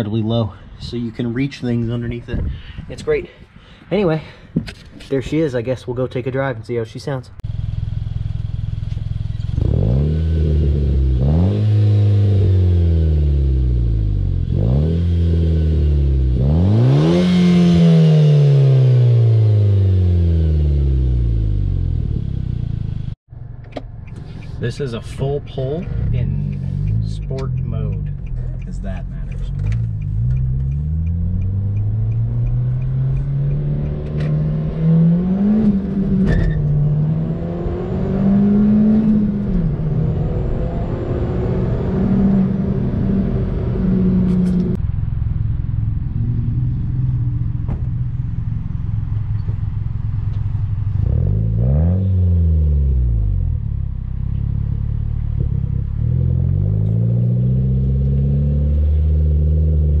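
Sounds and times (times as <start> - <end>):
car engine revving in cabin: 9.3 - 23.2, 25.6 - 44.8, 50.8 - 60.0.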